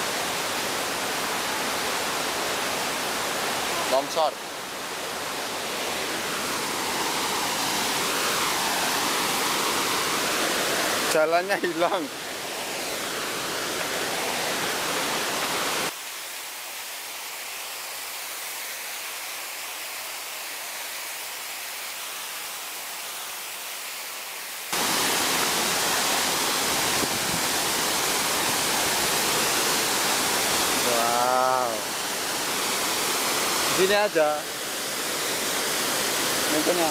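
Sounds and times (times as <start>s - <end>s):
waterfall rushing: 0.0s - 36.9s
person's voice: 11.1s - 12.1s, 30.8s - 31.9s, 33.8s - 34.4s, 36.5s - 36.9s.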